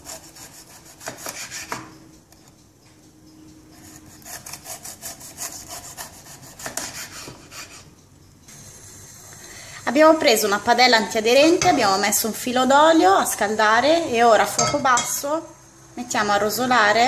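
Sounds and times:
knife sawing through pepper: 0:00.0 - 0:01.9, 0:03.7 - 0:07.9.

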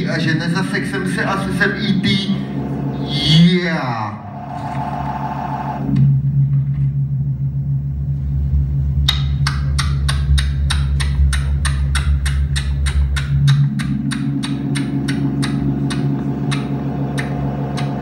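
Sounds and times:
low synth bass drone: 0:00.0 - 0:18.0
mid-pitched synth tone: 0:01.2 - 0:08.6
clicking percussion pattern: 0:09.0 - 0:18.0.

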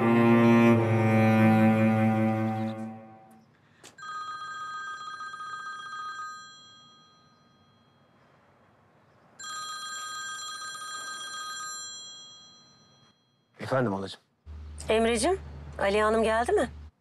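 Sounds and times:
mobile phone ringtone ringing: 0:04.0 - 0:08.2, 0:09.4 - 0:13.6.

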